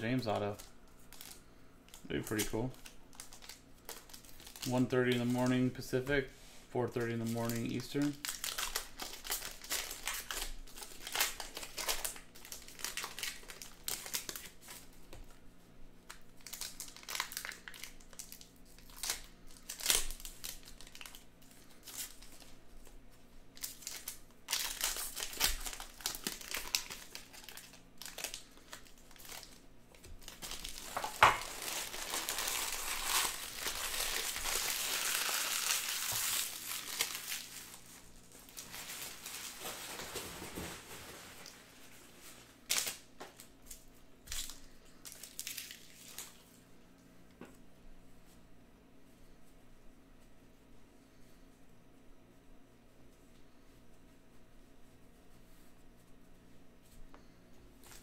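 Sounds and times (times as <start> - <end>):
card wrappers crinkling and tearing: 0.1 - 6.0, 7.0 - 15.3, 16.0 - 22.9, 23.5 - 46.6, 57.8 - 58.0.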